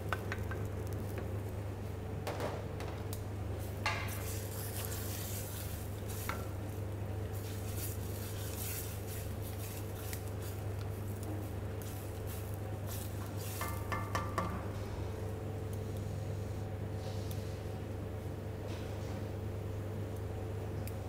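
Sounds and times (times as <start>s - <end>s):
steady low hum: 0.0s - 21.0s
wooden spoon stirring in pan: 3.7s - 14.7s.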